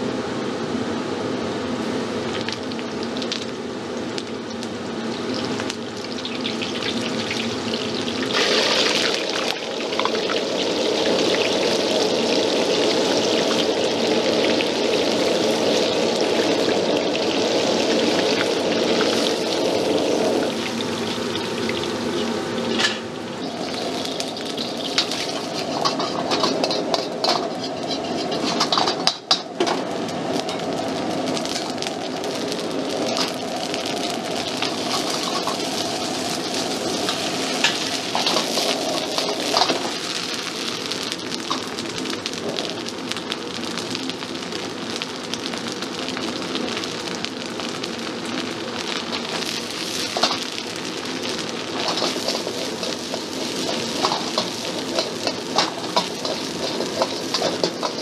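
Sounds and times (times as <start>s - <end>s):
gas flame roaring: 0.0s - 58.0s
food sizzling in hot oil: 1.8s - 58.0s
metal ladle scraping wok: 18.9s - 29.5s, 34.4s - 40.1s, 51.8s - 58.0s.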